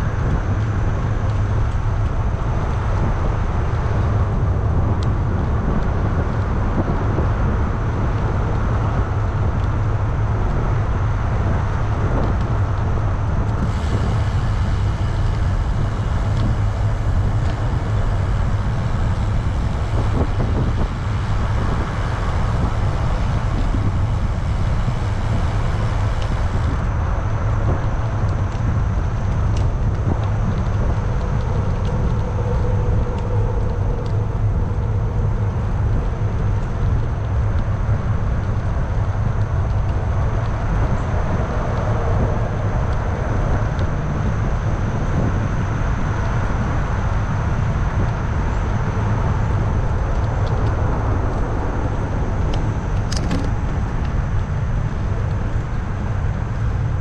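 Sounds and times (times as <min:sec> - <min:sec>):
road traffic rumble: 0:00.0 - 0:57.0
tyre hiss: 0:13.6 - 0:26.9.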